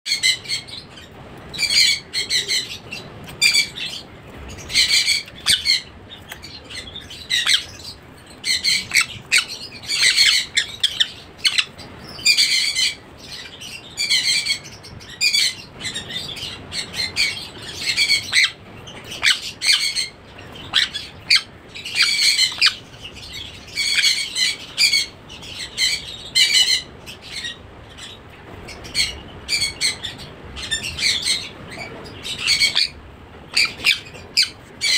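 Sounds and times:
parrot chick calling: 1.6s - 18.6s, 19.2s - 34.9s.

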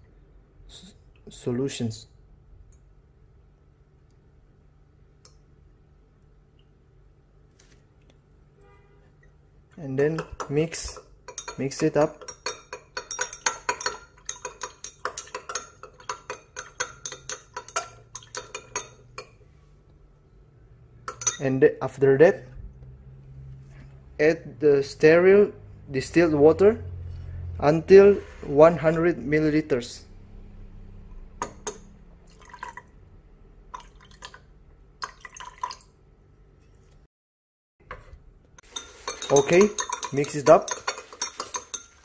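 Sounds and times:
glass rod clinking in beaker: 10.2s - 19.3s, 21.1s - 21.5s, 38.6s - 42.0s
water trickling into beaker: 32.2s - 33.0s, 33.7s - 36.0s.

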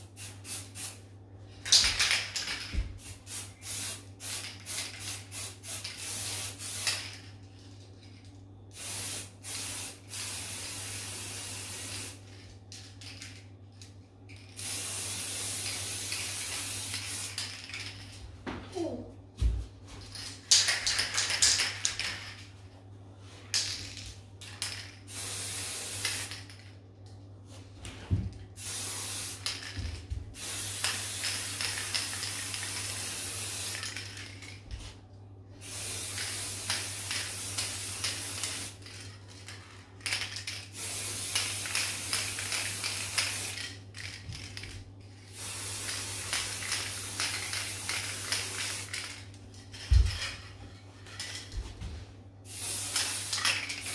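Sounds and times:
spray paint can hissing: 3.0s - 7.1s, 8.7s - 12.2s, 14.6s - 17.5s, 24.7s - 26.4s, 28.6s - 29.7s, 30.4s - 34.0s, 35.6s - 38.8s, 40.7s - 43.6s, 45.3s - 49.1s, 52.5s - 53.9s.

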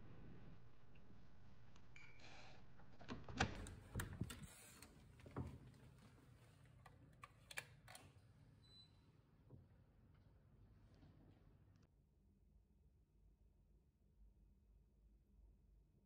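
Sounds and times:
door pushed open: 3.1s - 6.2s.

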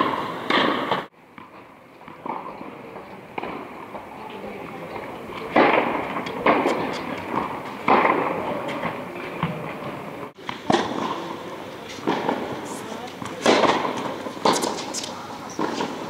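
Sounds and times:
tennis ball struck by rackets: 5.4s - 9.6s, 11.9s - 16.0s.

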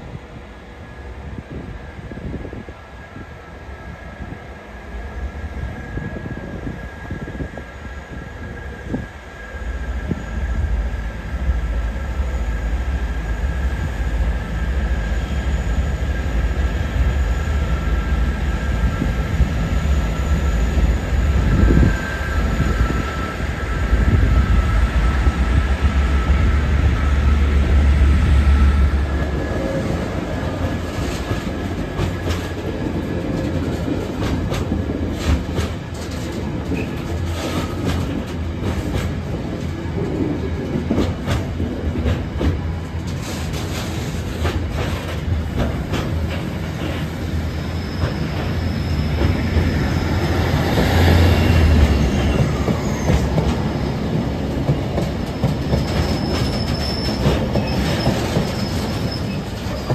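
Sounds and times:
diesel train engine drone: 0.0s - 59.9s
train wheels clicking over rail joints: 29.0s - 59.9s.

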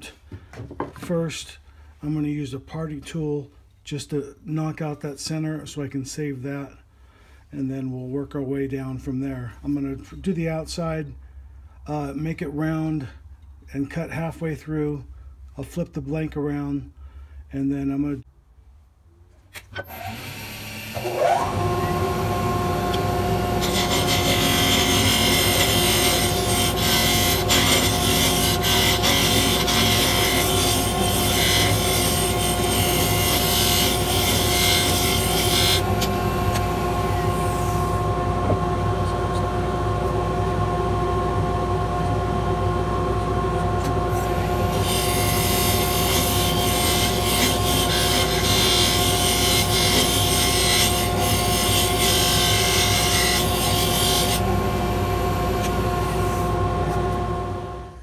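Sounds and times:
parting tool cutting spinning wood: 19.8s - 38.0s
lathe motor hum: 19.8s - 57.9s.

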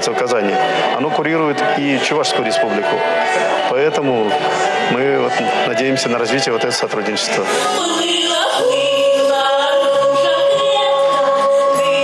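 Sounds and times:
two women singing folk duet: 7.7s - 12.0s.

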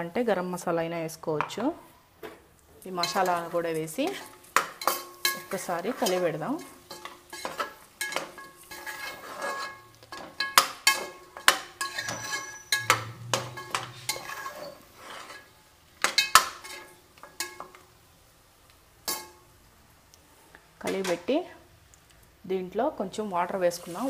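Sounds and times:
metal spoon scraping a pot: 3.0s - 17.8s
pot ringing: 11.8s - 14.9s.

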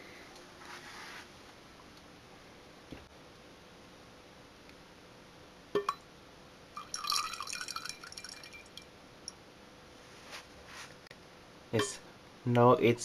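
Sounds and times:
liquid dripping into glass jar: 5.8s - 6.0s, 6.7s - 9.4s.

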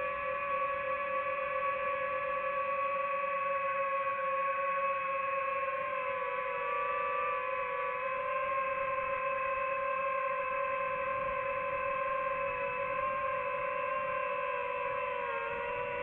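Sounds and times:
drone propellers whining: 5.7s - 16.0s.

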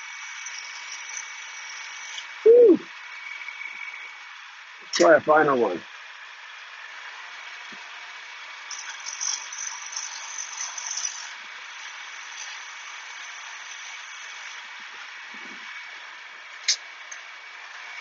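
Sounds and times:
grinding wheel hissing: 0.0s - 18.0s
honing tool scraping stone: 8.7s - 14.6s.

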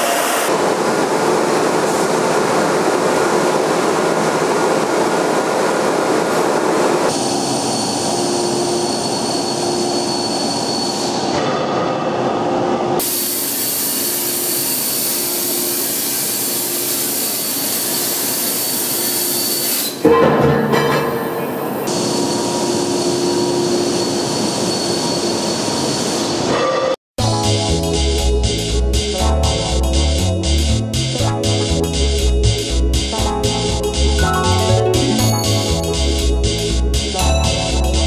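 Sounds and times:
industrial steel machinery noise: 0.0s - 38.0s.

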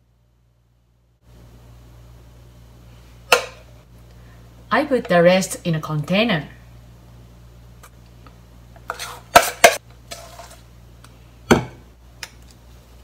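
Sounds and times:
spoon scraping bowl: 8.8s - 10.7s.

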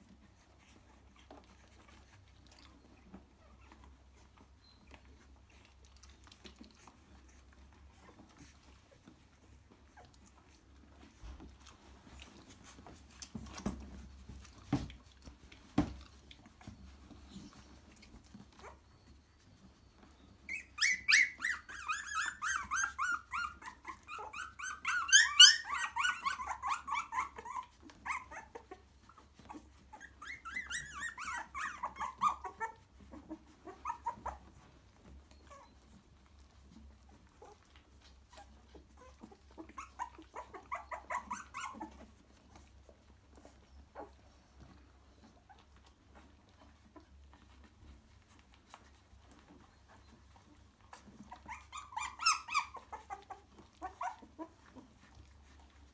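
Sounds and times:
puppies crying in high squeals: 18.4s - 36.0s, 38.3s - 42.3s, 50.9s - 55.2s.

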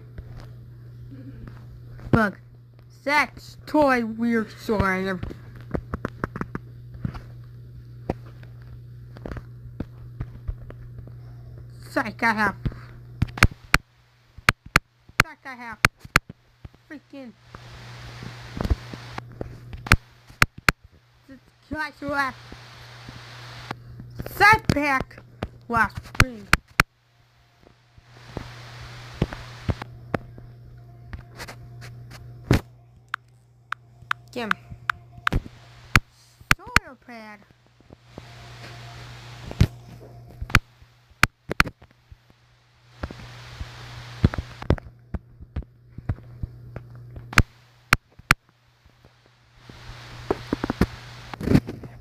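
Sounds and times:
steady low hum: 0.0s - 52.0s
soft hiss: 16.0s - 24.4s, 26.0s - 32.6s, 34.9s - 44.8s, 47.3s - 51.9s.

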